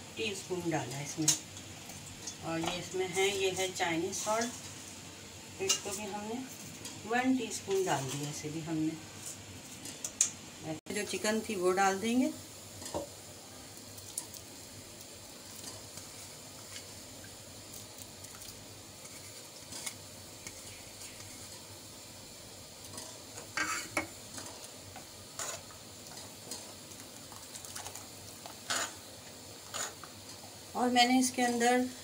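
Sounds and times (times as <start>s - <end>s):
simmering pot hiss: 0.0s - 32.0s
ladle scraping and clinking in a pot: 22.9s - 24.6s, 25.4s - 26.7s, 27.8s - 29.0s, 29.6s - 30.1s.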